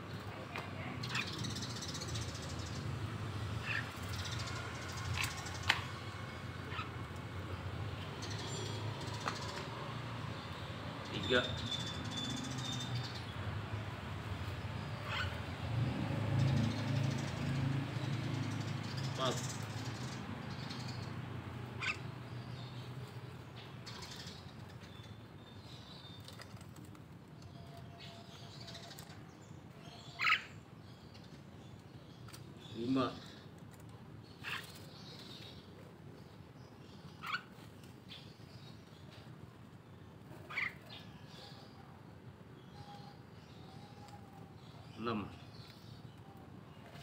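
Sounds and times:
myna bird calls: 0.5 - 2.7, 3.6 - 5.9, 6.6 - 7.1, 14.8 - 15.6, 21.7 - 22.9, 27.4 - 33.5, 36.8 - 38.8, 40.3 - 41.9.

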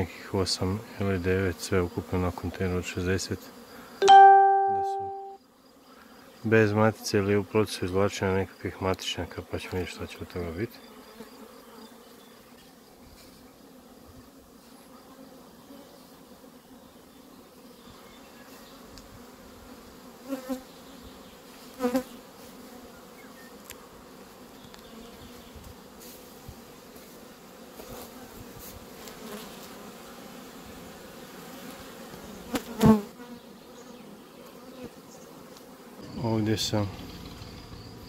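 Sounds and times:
bees buzzing: 10.4 - 38.0.

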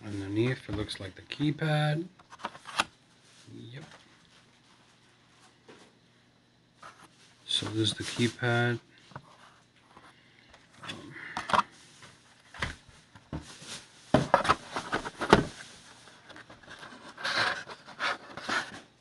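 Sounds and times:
plastic packaging handling noise: 10.9 - 19.0.

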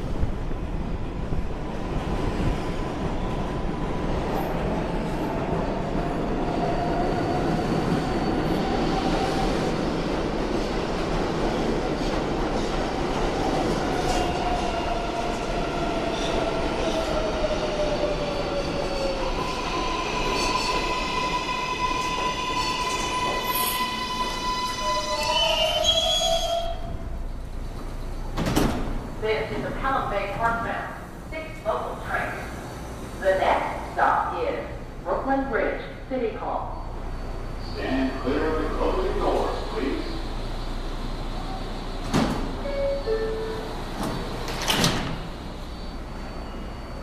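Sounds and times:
high braking tones: 19.5 - 27.3.

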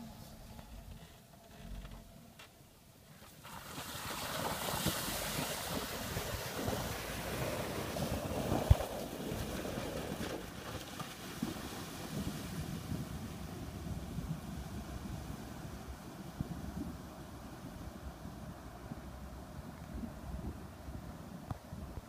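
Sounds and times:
water splashing and churning: 3.3 - 12.6
wind buffeting microphone: 4.1 - 22.0.

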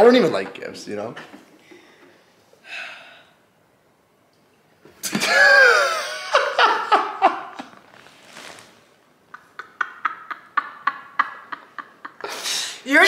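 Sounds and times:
man and woman laughing: 5.2 - 7.7, 9.3 - 12.4.

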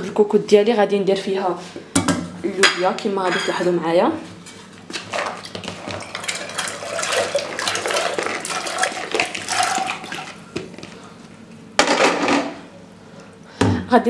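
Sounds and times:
splash or clatter: 5.1 - 10.4
beans and water poured into pot: 6.1 - 10.4.

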